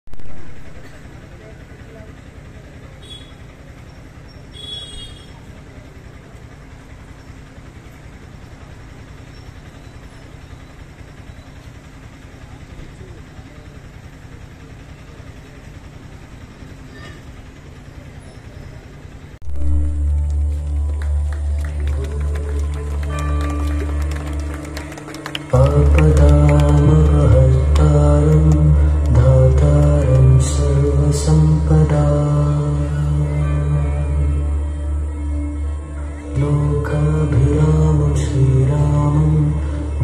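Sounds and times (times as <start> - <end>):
low outdoor rumble: 0.1 - 40.0
loud music with heavy bass: 19.4 - 40.0.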